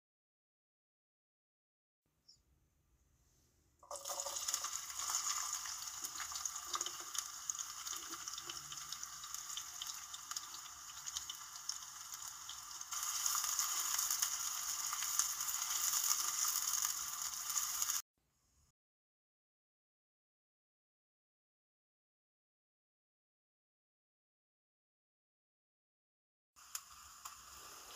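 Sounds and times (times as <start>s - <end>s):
tuna sizzling in frying pan: 3.9s - 18.0s, 26.6s - 27.9s.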